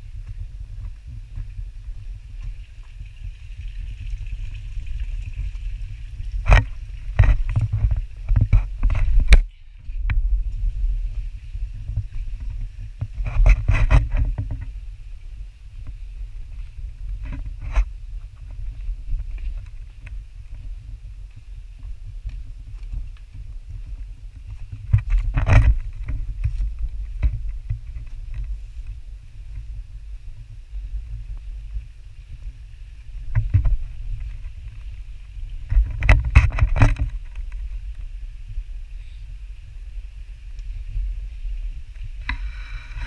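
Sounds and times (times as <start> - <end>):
knocks and scrapes: 2.4 - 10.8, 11.8 - 14.8, 16.6 - 20.6, 24.5 - 29.7, 33.2 - 35.0, 35.6 - 38.1
camera handling rumble: 6.3 - 10.7, 11.9 - 14.8, 16.6 - 20.6, 24.4 - 29.7, 33.2 - 38.1.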